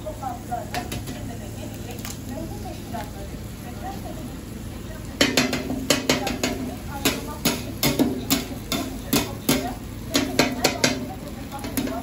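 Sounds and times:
metal spatula clacking on griddle: 0.7 - 1.2, 5.2 - 12.0.

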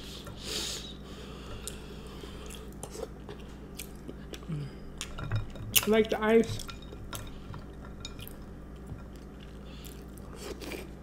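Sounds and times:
steady low hum: 0.0 - 11.0
close chewing and crunching: 1.6 - 5.9, 6.6 - 11.0.

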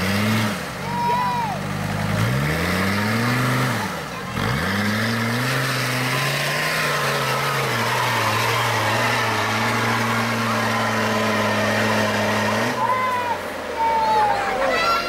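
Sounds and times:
off-road engine revving: 0.0 - 15.0.

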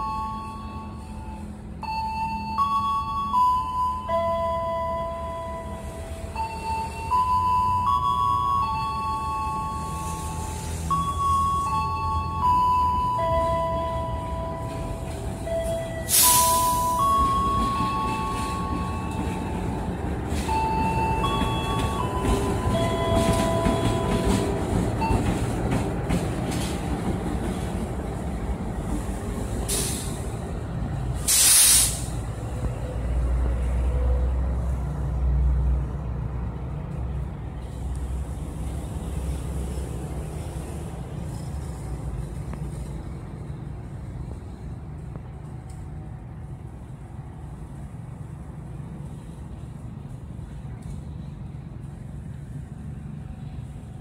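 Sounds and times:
diesel locomotive engine rumble: 0.0 - 54.0
loud air hisses: 16.1 - 17.0, 29.5 - 30.4, 31.2 - 32.2.

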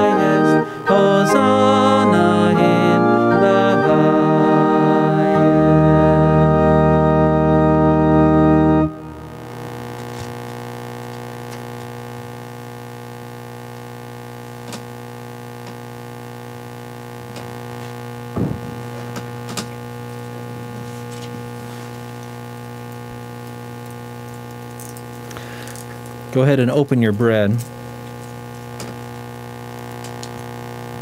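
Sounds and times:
electrical mains hum: 0.0 - 31.0
brief knock: 18.4 - 18.8.

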